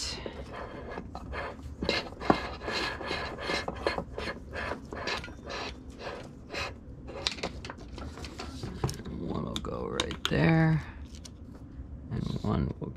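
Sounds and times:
power cord scraping: 0:00.2 - 0:08.7.

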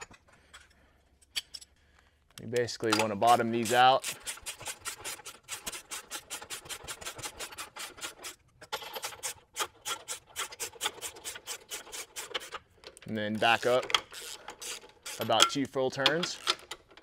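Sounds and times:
metal post rasping on threaded stud: 0:03.3 - 0:12.6.

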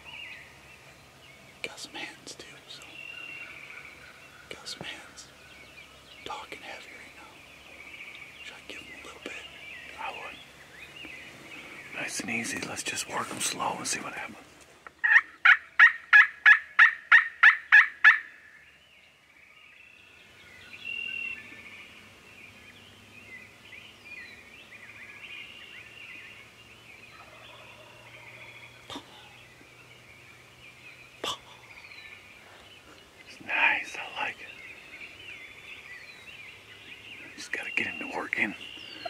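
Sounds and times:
faint songbird chatter: 0:00.0 - 0:39.0
turkey call yelps: 0:15.0 - 0:18.3.

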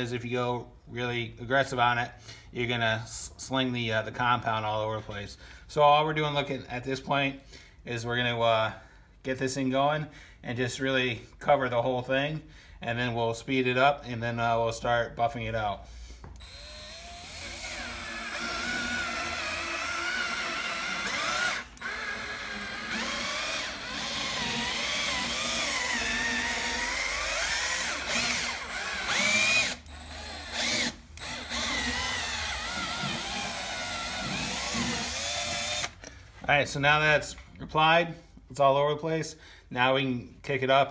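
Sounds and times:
cordless drill motor whine: 0:16.4 - 0:36.0.

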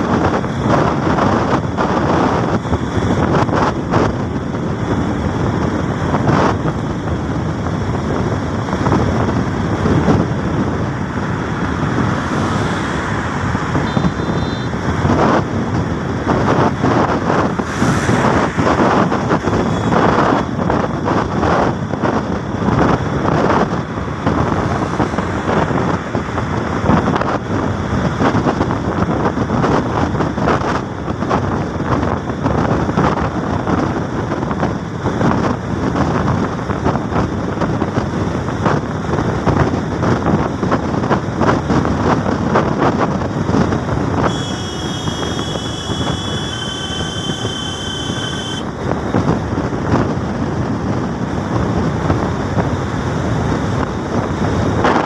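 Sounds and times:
road and engine noise: 0:00.0 - 0:55.0
wind buffeting microphone: 0:00.0 - 0:55.0
high whistling tones: 0:44.3 - 0:48.6.

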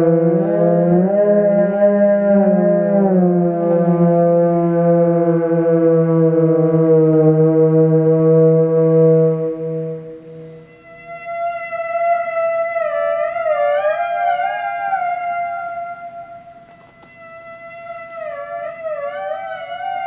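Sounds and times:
low held note with overtones: 0:00.0 - 0:20.0
theremin tone wavering: 0:00.0 - 0:20.0.

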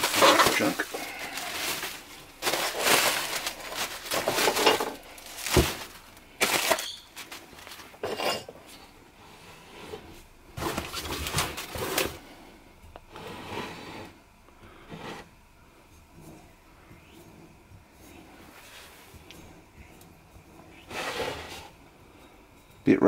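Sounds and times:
plastic bags crinkling: 0:00.0 - 0:08.1, 0:10.6 - 0:12.2.

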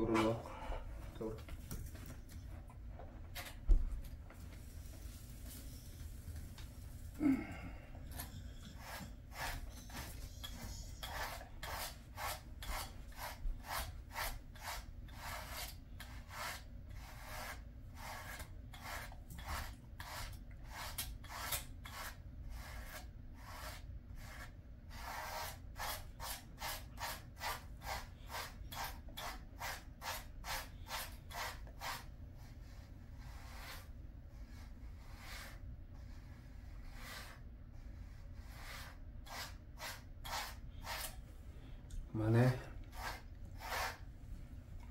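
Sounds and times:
grooming brush rasping through fur: 0:08.0 - 0:41.2, 0:42.2 - 0:44.1.

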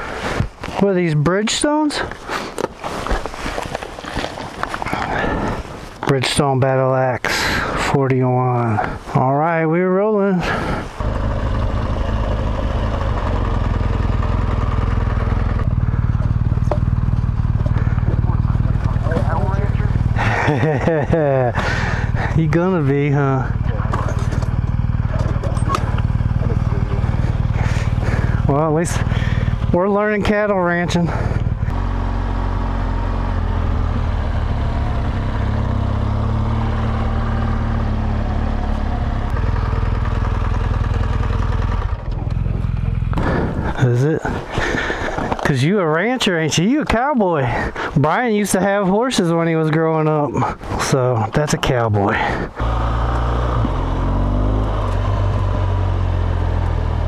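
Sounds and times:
motorcycle engine running: 0:11.0 - 0:45.5, 0:52.1 - 0:57.0.

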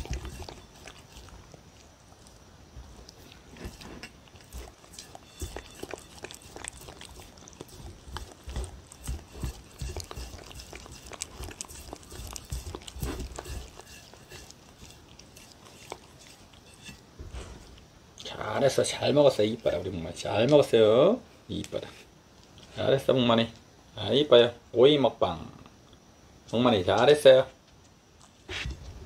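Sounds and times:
puppy licking a plate: 0:00.0 - 0:20.7.

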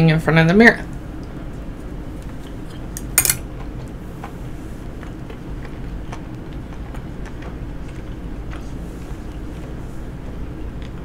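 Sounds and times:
steady low hum: 0:00.0 - 0:11.0
person chewing: 0:02.1 - 0:11.0.

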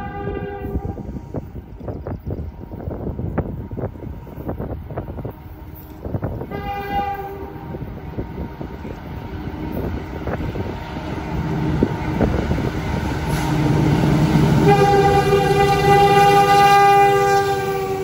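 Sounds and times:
locomotive air horn blast: 0:00.0 - 0:01.4, 0:06.4 - 0:07.8, 0:13.3 - 0:18.0
locomotive engine: 0:00.0 - 0:18.0.

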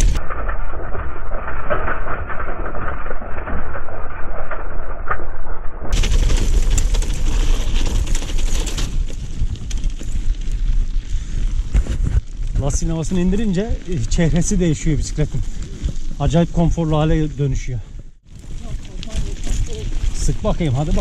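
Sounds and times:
mountain bike rattling: 0:05.9 - 0:21.0
tyres crunching over gravel: 0:06.0 - 0:21.0.

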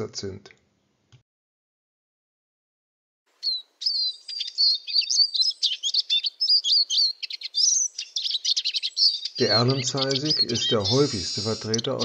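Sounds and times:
bird twittering song: 0:03.3 - 0:12.0.

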